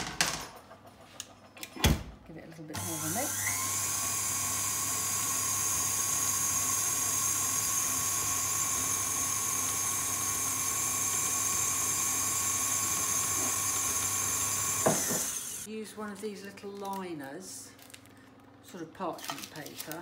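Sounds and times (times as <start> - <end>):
stand mixer motor whining: 2.8 - 15.7.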